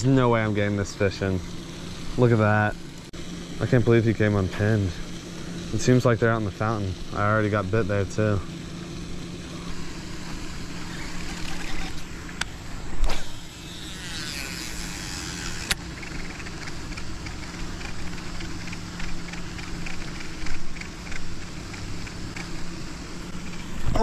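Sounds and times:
steady low hum: 0.0 - 24.0
fishing reel ticking: 13.2 - 22.5.

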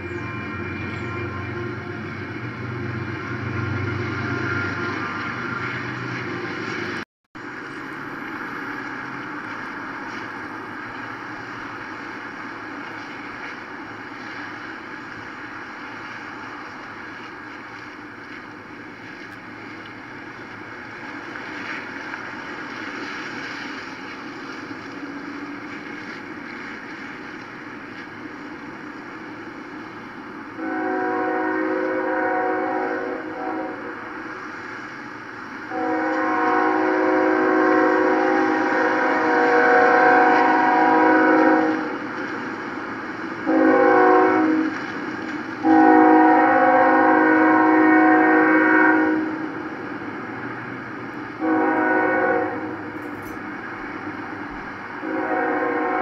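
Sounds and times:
locomotive air horn: 0.0 - 7.0, 30.6 - 34.2, 35.7 - 42.0, 43.4 - 44.9, 45.6 - 49.6, 51.4 - 53.4, 55.0 - 56.0
steady background noise: 0.0 - 56.0.

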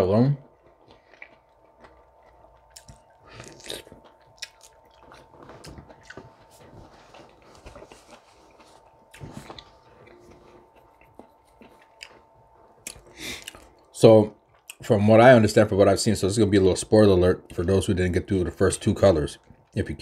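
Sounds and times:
person chewing food: 0.4 - 14.9.

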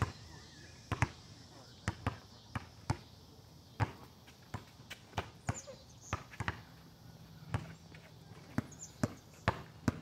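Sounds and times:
basketball bouncing on court: 0.9 - 1.2, 1.8 - 3.1, 3.8 - 6.7, 8.4 - 10.0.

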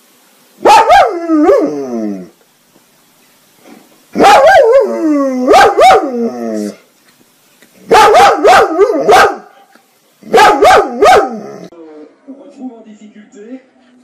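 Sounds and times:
dog barking: 0.6 - 1.7, 4.2 - 6.2, 7.8 - 11.6.

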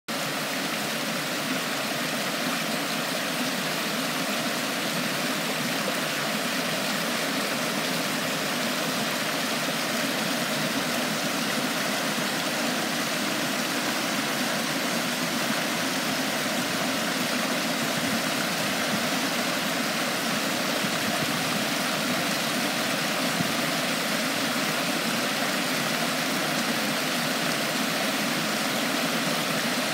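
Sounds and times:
river rushing over boulders: 0.1 - 29.9.

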